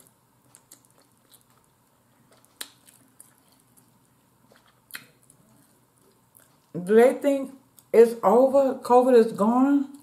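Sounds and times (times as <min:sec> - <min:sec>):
soft wet eating clicks: 0:00.0 - 0:06.7.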